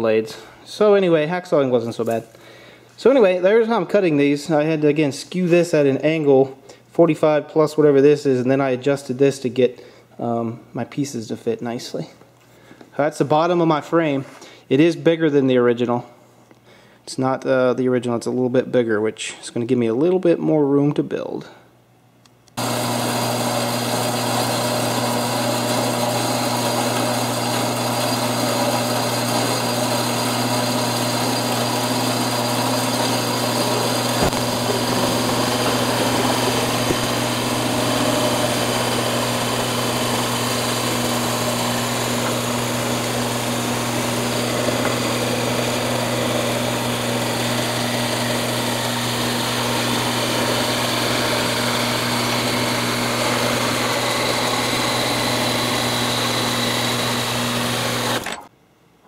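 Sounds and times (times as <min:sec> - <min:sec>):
band saw cutting metal: 0:22.6 - 0:58.5.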